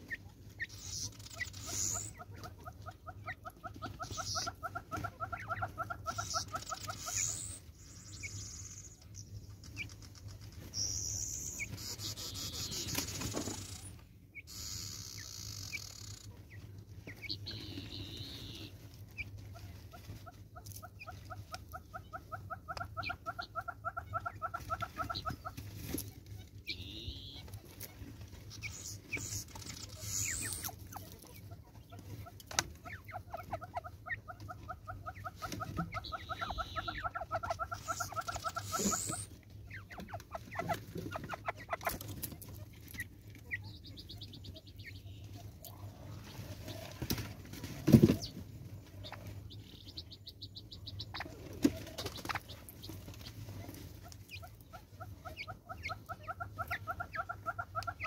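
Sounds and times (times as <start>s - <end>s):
small birds chirping: 0.0s - 58.0s.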